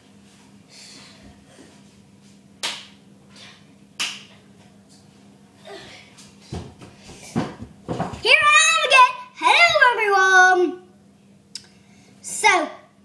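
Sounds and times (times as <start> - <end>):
sharp snaps: 2.6 - 3.0, 4.0 - 4.3.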